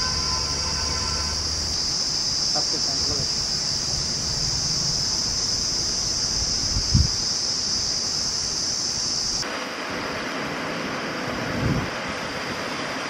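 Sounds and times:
high-pitched insect buzz: 0:00.0 - 0:09.4
dull hiss: 0:00.9 - 0:11.8
wind noise: 0:03.4 - 0:10.3, 0:11.2 - 0:13.0.

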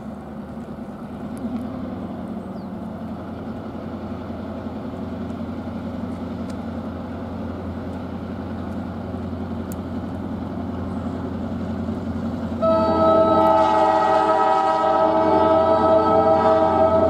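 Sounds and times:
diesel locomotive engine rumble: 0:00.0 - 0:17.0
locomotive air horn chord: 0:12.6 - 0:17.0.

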